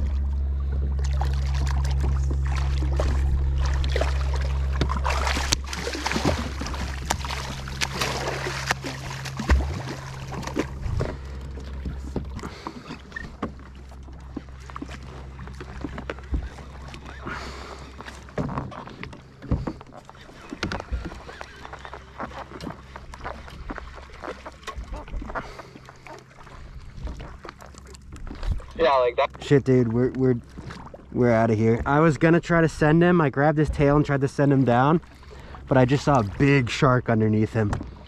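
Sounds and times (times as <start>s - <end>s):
gear knocking against boat: 0.0s - 28.6s, 37.2s - 38.0s
water sloshing against kayak hull: 0.0s - 38.0s.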